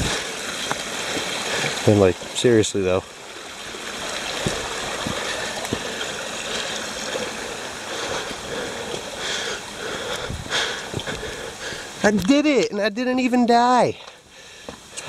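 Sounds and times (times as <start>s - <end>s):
stream water rushing: 0.0s - 15.0s
footsteps on rock: 4.2s - 7.4s, 10.1s - 11.4s.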